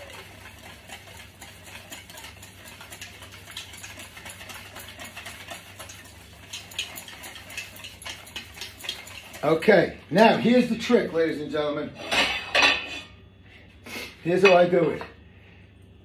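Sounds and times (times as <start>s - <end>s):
fork whisking in a steel bowl: 0.0s - 11.6s.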